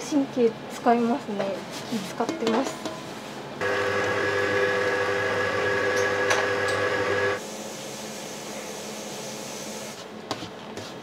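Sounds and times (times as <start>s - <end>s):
kitchen appliance motor whining: 3.6s - 7.4s.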